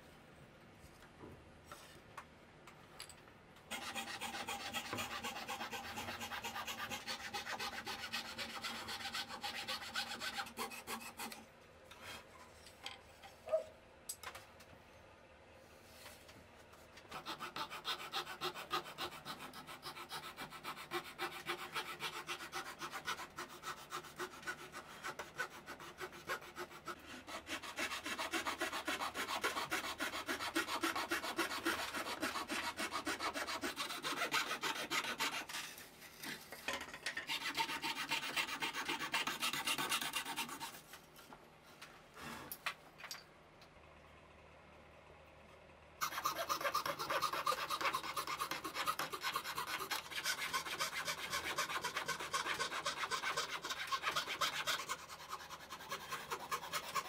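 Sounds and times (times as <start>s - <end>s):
fret saw cutting wood: 3.7s - 11.4s, 17.1s - 35.8s, 46.0s - 57.0s.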